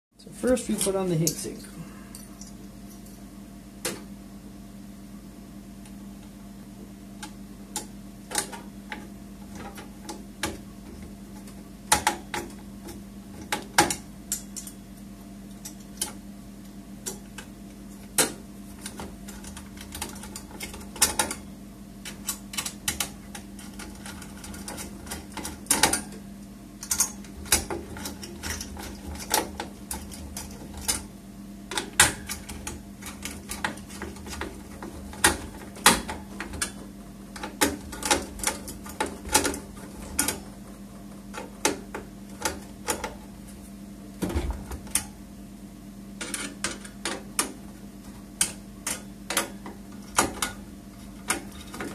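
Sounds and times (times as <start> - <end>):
steady low hum: 0.2 - 51.9.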